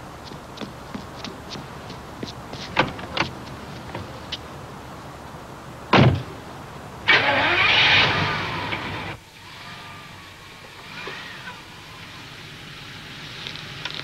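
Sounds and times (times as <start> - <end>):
car door slamming: 5.9 - 6.3.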